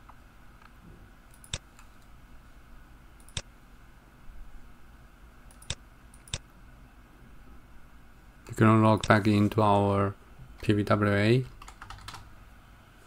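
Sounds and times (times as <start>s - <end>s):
computer mouse clicks: 1.3s - 2.0s, 3.2s - 3.5s, 5.5s - 6.5s.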